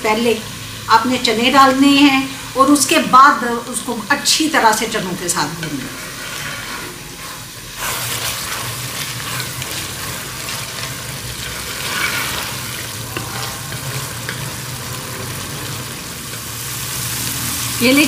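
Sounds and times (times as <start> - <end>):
chickpeas sizzling in a pot: 0.0 - 18.0
wooden spoon scraping: 5.5 - 16.4.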